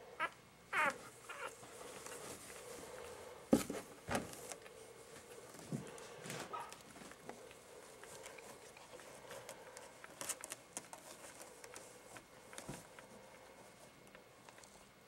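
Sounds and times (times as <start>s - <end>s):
puppies scratching and rustling: 0.7s - 15.0s.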